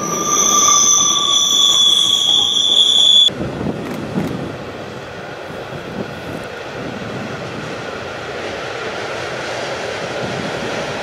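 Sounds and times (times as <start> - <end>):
train wheels squealing: 0.0 - 3.3
distant train rumble: 0.0 - 11.0
wind noise on microphone: 3.3 - 8.6, 9.6 - 11.0.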